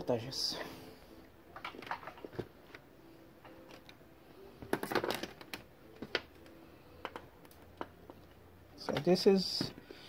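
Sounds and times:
clicks and knocks of handling: 1.6 - 2.8, 4.6 - 9.9.

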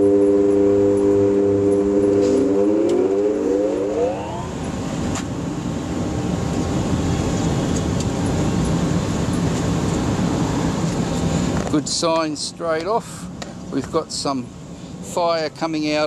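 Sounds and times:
electric blower whining: 0.0 - 5.7
burner combustion rumble: 0.0 - 14.7.

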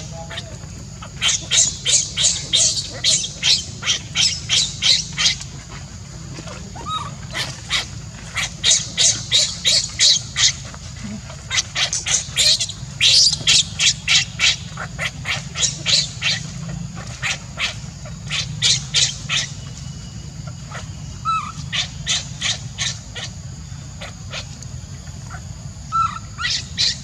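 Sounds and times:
baby monkey squealing: 0.0 - 5.4, 6.8 - 16.4, 20.7 - 23.3, 25.9 - 27.0.

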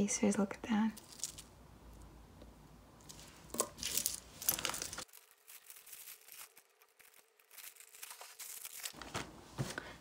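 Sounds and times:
jewellery and glass beads clinking: 1.0 - 1.5, 3.1 - 7.8.

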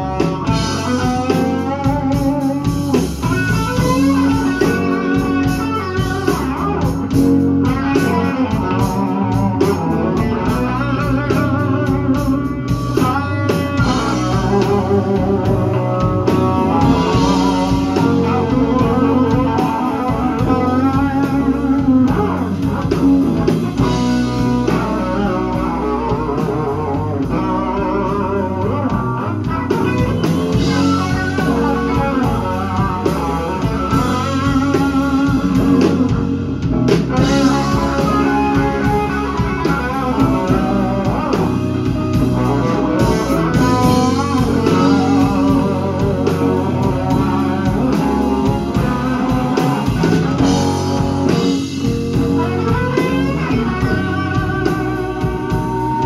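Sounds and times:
blues band playing: 0.0 - 56.0
electric guitar with bent notes: 0.0 - 56.0.

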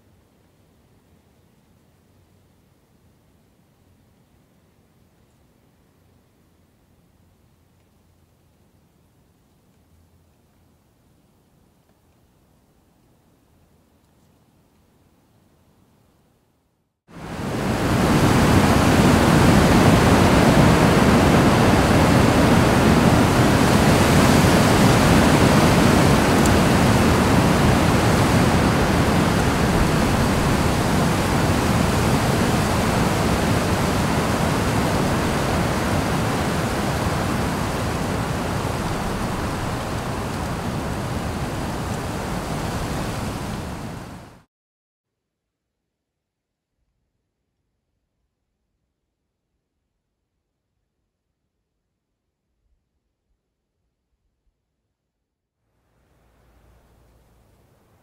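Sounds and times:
wind blowing across microphone: 17.1 - 44.4.

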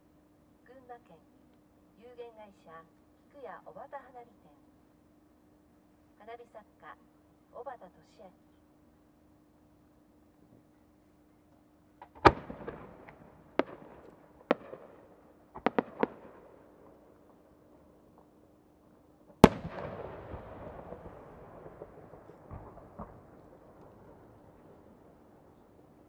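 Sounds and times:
firework bangs with rolling echo: 12.0 - 18.4, 19.2 - 26.0.

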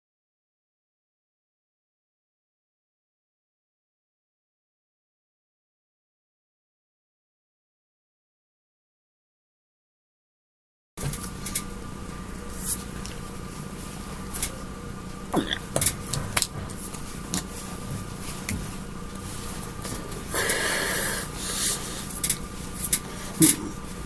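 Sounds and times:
electrical hum: 11.0 - 24.0
breathy rustling hiss: 19.2 - 22.3.

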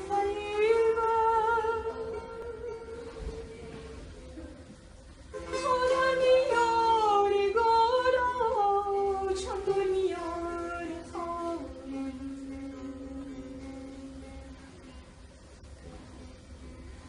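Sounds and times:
woman singing slow melody: 0.0 - 4.1, 5.4 - 14.6.

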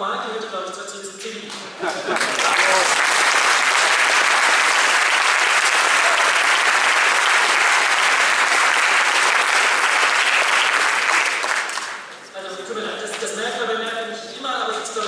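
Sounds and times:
audience applauding: 2.1 - 12.1.

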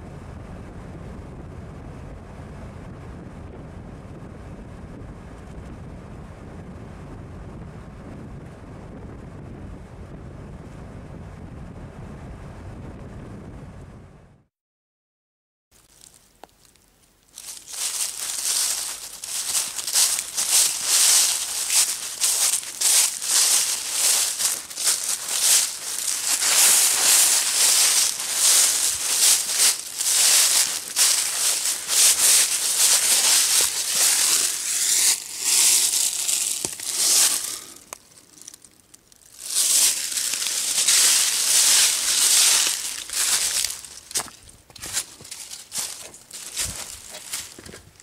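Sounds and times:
footsteps rustling through dry leaves: 15.8 - 48.0.

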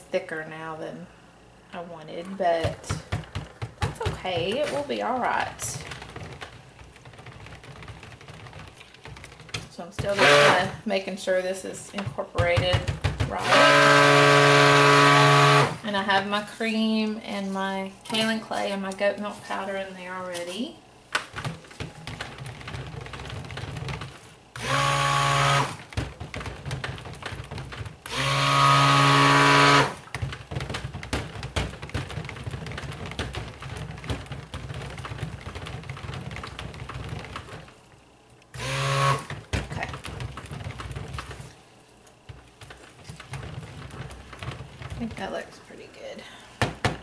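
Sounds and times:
blender scraping thick batter: 2.6 - 16.0, 21.8 - 37.7, 38.5 - 41.6, 42.3 - 46.3
stick blender motor whine: 10.1 - 10.7, 13.4 - 15.8, 24.6 - 25.8, 28.0 - 30.0, 38.5 - 39.4.

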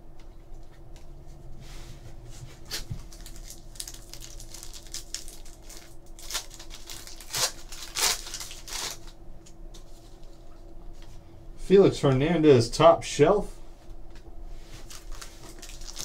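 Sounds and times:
foil wrapper crinkling and tearing: 2.7 - 9.2, 14.8 - 16.0.

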